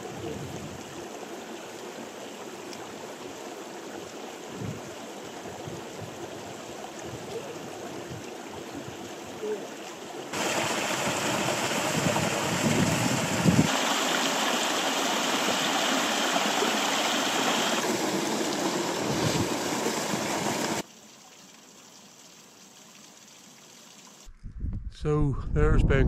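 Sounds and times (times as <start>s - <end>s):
river rushing over rocks: 10.3s - 20.8s.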